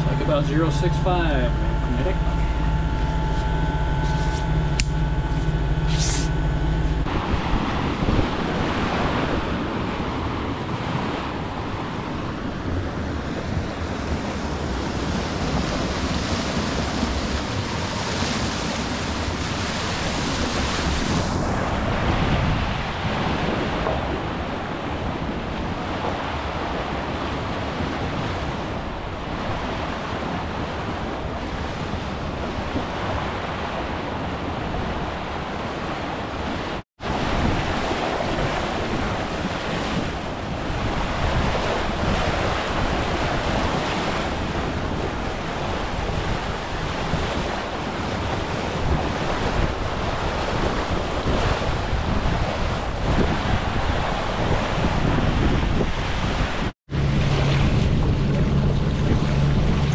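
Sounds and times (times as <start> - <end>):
machine hum: 0.0 - 9.5
water rushing along boat hull: 0.0 - 59.9
wind on microphone: 0.0 - 59.9.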